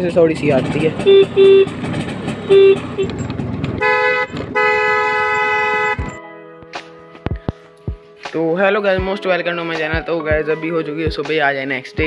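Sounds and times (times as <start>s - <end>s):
scooter engine running: 0.0s - 6.2s
two-tone horn blast: 0.9s - 3.2s, 3.8s - 6.2s
short horn beep: 1.0s - 1.8s, 2.4s - 3.2s, 3.8s - 6.2s.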